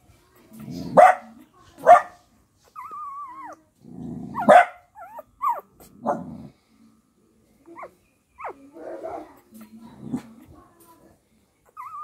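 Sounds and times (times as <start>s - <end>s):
dog barking: 1.0s - 2.2s, 4.4s - 4.9s
dog whining: 2.8s - 3.6s, 4.3s - 5.8s, 11.8s - 12.0s.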